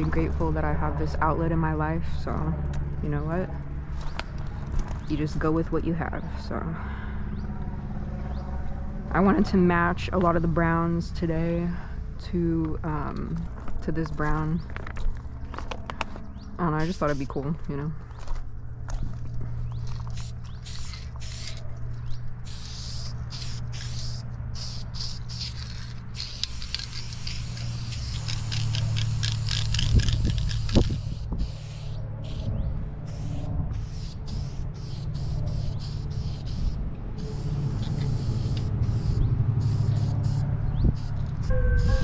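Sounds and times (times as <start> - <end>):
aerosol spray can hissing: 20.1 - 21.6, 22.4 - 32.5, 33.1 - 40.4.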